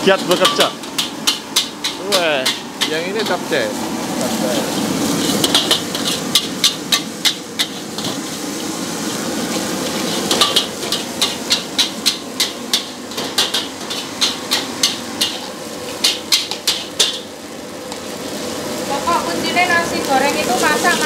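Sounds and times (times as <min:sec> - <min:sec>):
metal ladle clanging on wok: 0:00.1 - 0:03.4, 0:05.2 - 0:08.2, 0:10.2 - 0:17.3.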